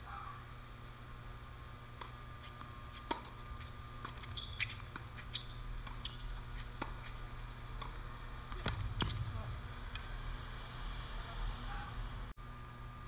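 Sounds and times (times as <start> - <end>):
tennis ball struck by rackets: 2.0 - 10.1
short high squeaks: 3.6 - 6.7.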